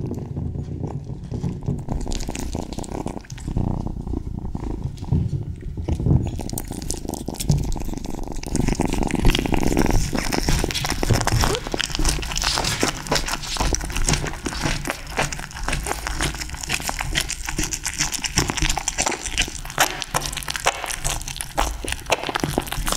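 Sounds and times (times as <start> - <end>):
kitten licking and chewing: 0.0 - 22.9.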